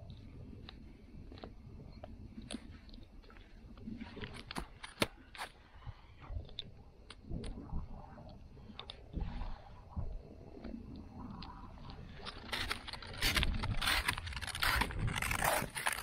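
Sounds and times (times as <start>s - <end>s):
clicks of straps and buckles: 4.1s - 5.6s, 12.2s - 16.0s.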